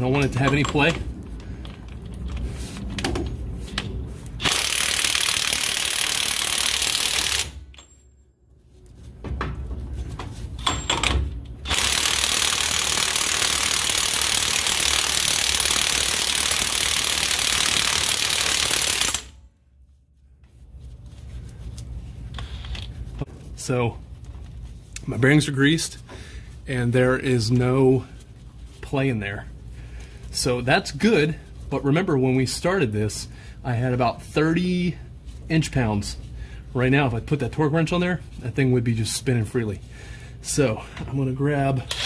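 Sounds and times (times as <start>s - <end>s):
impact wrench hammering: 4.4s - 7.9s, 10.6s - 19.3s.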